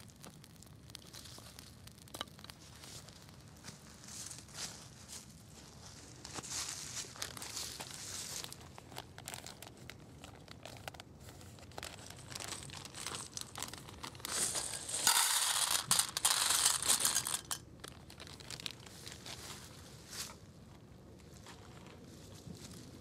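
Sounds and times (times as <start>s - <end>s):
plastic bag crinkling: 6.8s - 19.5s
dry noodles poured into metal pot: 11.8s - 17.6s.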